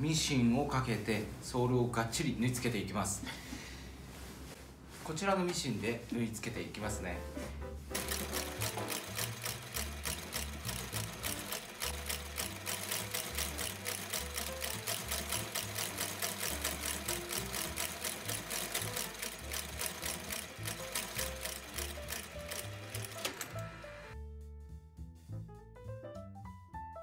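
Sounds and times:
stitching machine clacking: 8.0s - 23.8s.

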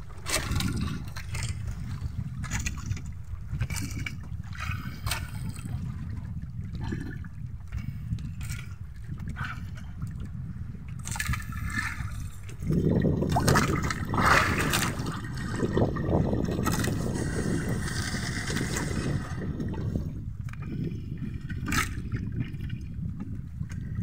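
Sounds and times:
low steady rumble: 0.0s - 24.0s
water splashing and trickling: 0.0s - 24.0s
net scraping along hull: 0.1s - 5.0s, 11.1s - 20.2s.

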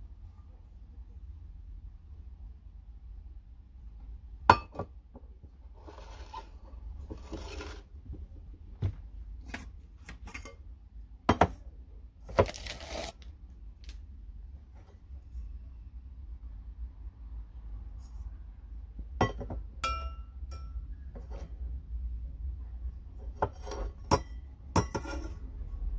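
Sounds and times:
metal rubbing and scraping: 5.8s - 7.9s.

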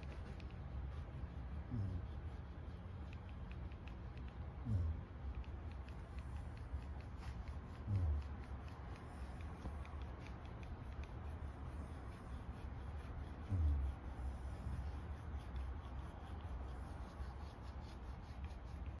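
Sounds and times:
roller massager rubbing fur: 0.0s - 19.0s.

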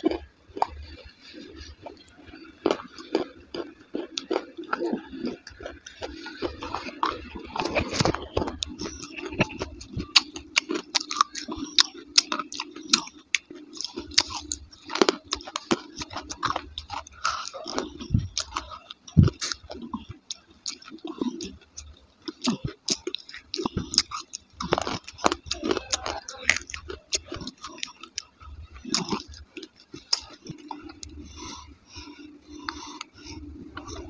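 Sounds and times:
chewing and crunching: 0.0s - 34.0s.

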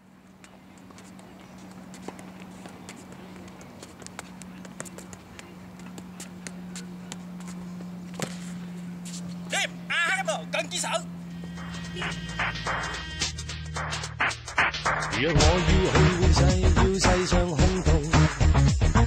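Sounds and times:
low hum: 0.0s - 18.1s
shoes scuffing court: 0.3s - 10.2s
ball taps on feet: 2.0s - 7.6s.

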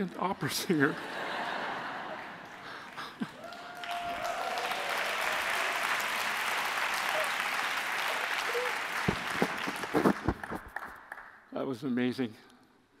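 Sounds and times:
audience applauding: 1.0s - 11.4s.

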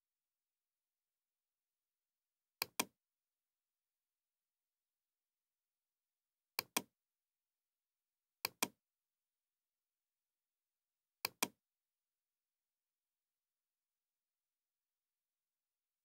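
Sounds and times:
mouse button clicking: 2.6s - 2.9s, 6.6s - 6.9s, 8.4s - 8.8s, 11.2s - 11.6s.

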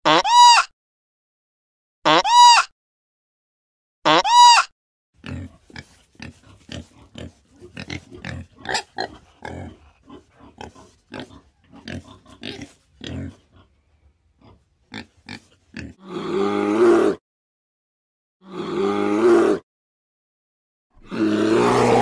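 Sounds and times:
bear call: 4.1s - 4.7s, 21.0s - 22.0s
wild boar grunting: 5.2s - 17.2s, 18.4s - 19.6s, 21.0s - 22.0s.

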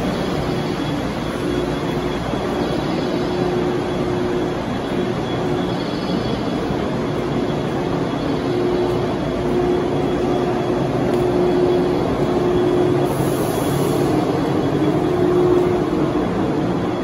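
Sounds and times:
electric train humming: 0.0s - 17.0s.

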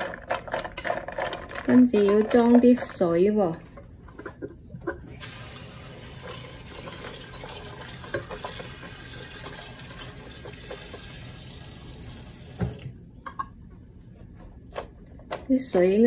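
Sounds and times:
tap water running into pot: 5.1s - 13.0s.

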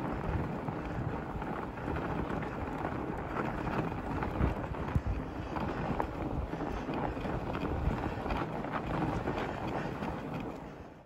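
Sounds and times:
bike tyres rolling on snow: 0.0s - 11.0s
wind buffeting microphone: 0.0s - 11.0s.

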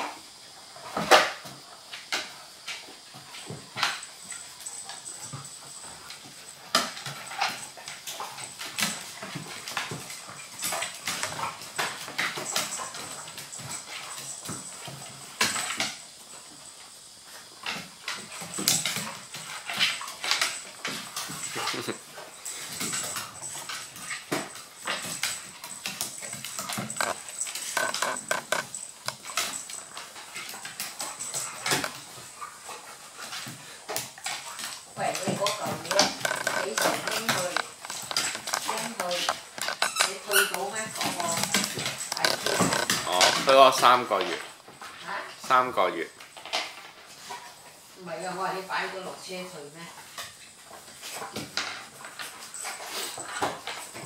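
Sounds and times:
dog claws clicking on wooden floor: 17.6s - 32.3s, 33.2s - 44.8s
dog whimpers: 35.8s - 43.6s.

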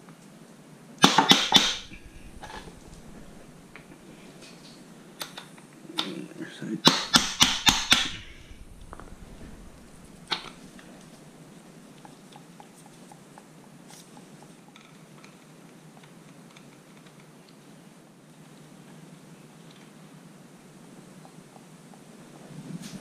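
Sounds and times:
mallet striking metal nut: 1.0s - 2.0s, 6.9s - 8.3s.

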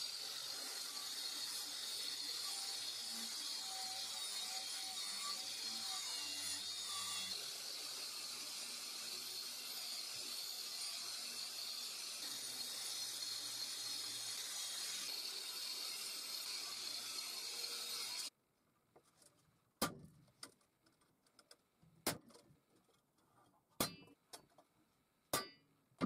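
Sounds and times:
wire brush grinder on metal: 0.0s - 18.3s.

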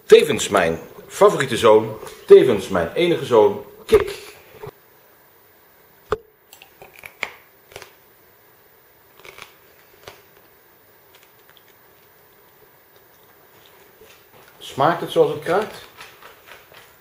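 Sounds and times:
crunching pork crackling: 6.5s - 8.0s, 9.1s - 17.0s.

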